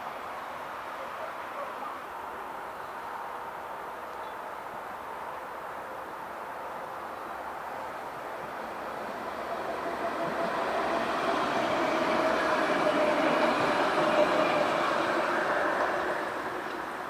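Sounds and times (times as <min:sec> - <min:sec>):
tram wheels rumbling on track: 0:08.3 - 0:17.0
tram whine: 0:08.3 - 0:17.0.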